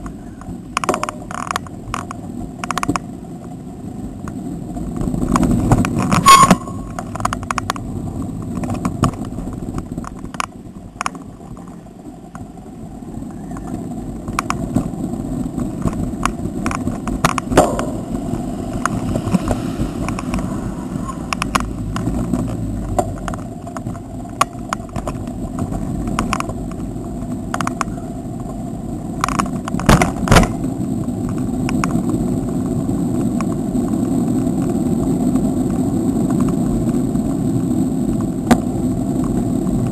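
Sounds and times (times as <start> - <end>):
bicycle rattling over bumps: 0.0 - 39.9
wind on microphone: 3.9 - 39.9.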